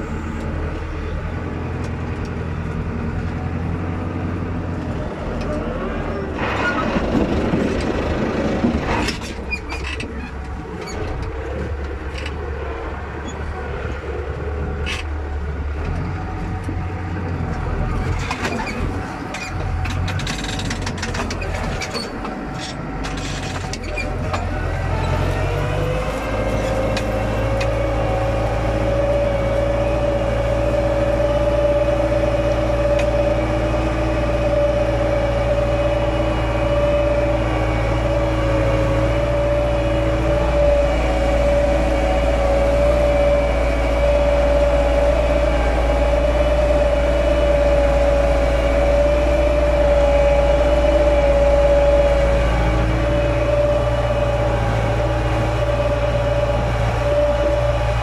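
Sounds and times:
tractor engine droning: 0.0 - 58.0
knocks and rattles: 18.0 - 24.5.

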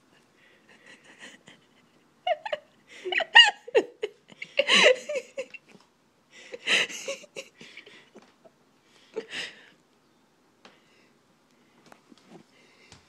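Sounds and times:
people laughing and giggling: 0.9 - 5.7, 6.6 - 8.3.

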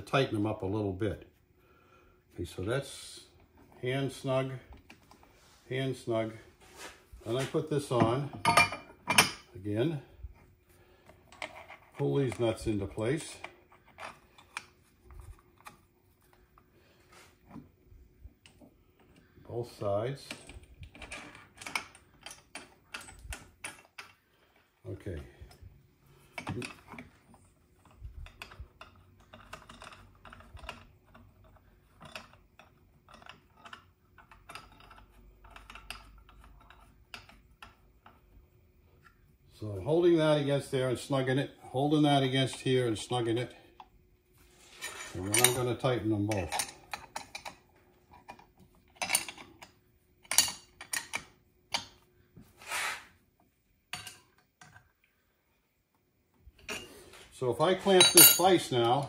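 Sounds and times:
metal scraping rub: 52.5 - 53.2
steel clinks and knocks: 58.0 - 58.6.

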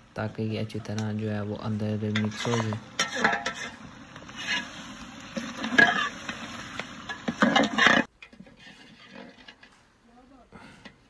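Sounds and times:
food sizzling: 0.0 - 9.2
ladle scraping metal pot: 2.0 - 9.8.

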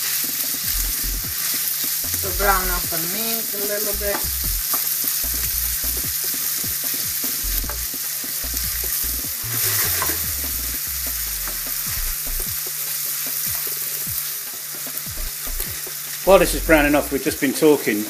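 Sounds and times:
meat sizzling in a frying pan: 0.0 - 18.0
utensil clicking in pan: 4.1 - 7.9.

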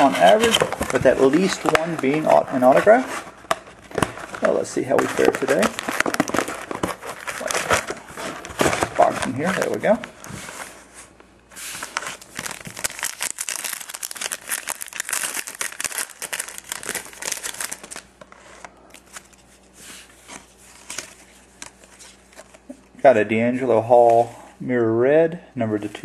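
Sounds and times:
card pack wrapper crinkling and tearing: 0.0 - 10.1, 11.8 - 18.2.

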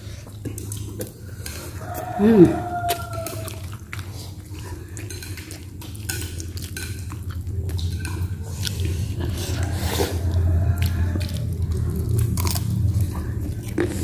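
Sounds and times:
low hum: 6.8 - 14.0.

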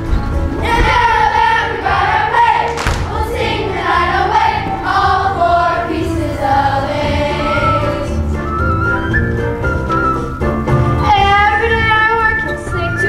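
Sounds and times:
children's choir singing: 0.5 - 8.8
thump: 0.7 - 1.2, 2.8 - 3.4.

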